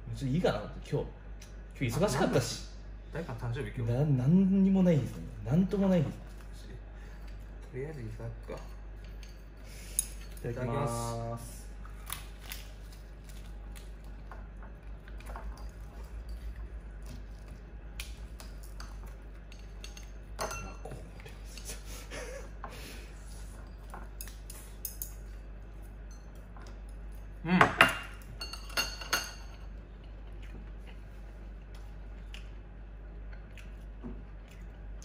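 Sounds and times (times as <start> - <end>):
chopsticks clinking on porcelain: 18.4 - 21.7
dishes clattering: 18.6 - 20.9.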